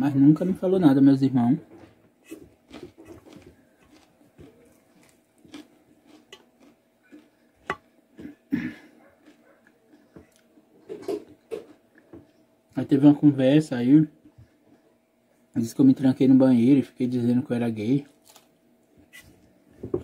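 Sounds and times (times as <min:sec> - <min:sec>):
chewing with mouth full: 0:02.3 - 0:12.4.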